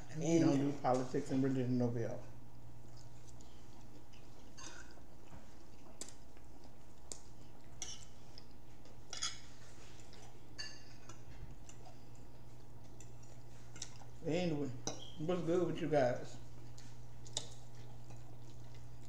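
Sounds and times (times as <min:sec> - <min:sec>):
steady low hum: 0:00.0 - 0:19.0
chewing mouth sounds: 0:02.6 - 0:14.2, 0:16.4 - 0:19.0
forks scraping on plates: 0:09.1 - 0:09.9.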